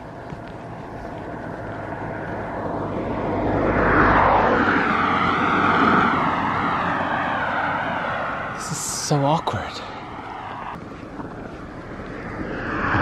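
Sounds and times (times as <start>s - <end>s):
car driving past: 1.2s - 8.7s, 11.9s - 13.0s.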